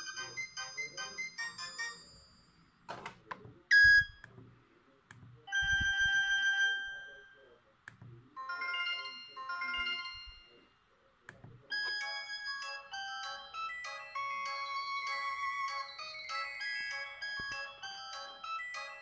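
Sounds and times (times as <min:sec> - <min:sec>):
ringtone melody: 0:00.0 - 0:02.7, 0:05.5 - 0:07.6, 0:08.4 - 0:10.7, 0:11.7 - 0:19.0
phone keypad buttons clicking: 0:05.1 - 0:06.3.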